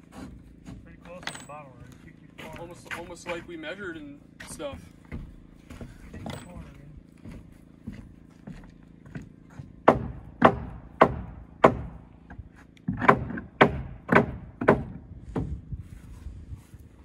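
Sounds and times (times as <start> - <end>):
hammer striking wood: 9.6 - 15.6.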